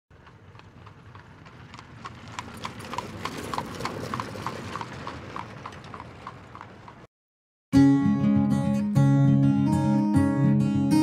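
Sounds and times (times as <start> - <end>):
horse hooves clip-clopping: 0.1 - 7.1.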